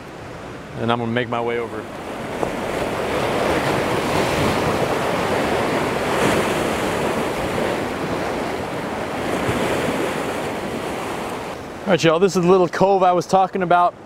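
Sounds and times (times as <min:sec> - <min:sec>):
surf breaking over rocks: 0:00.0 - 0:13.8
wind on microphone: 0:01.8 - 0:11.8.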